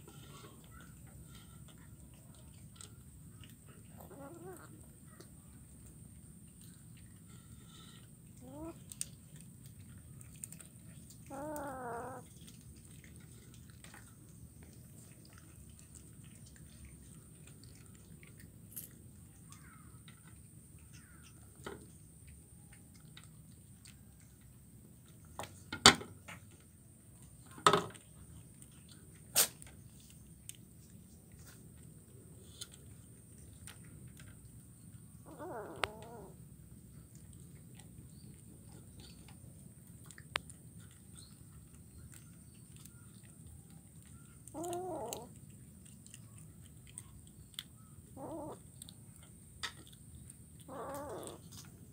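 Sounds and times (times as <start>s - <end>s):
faint chewing: 0.0s - 51.9s
wavering cat meow: 11.3s - 12.3s, 35.3s - 36.4s, 44.6s - 45.3s, 50.7s - 51.4s.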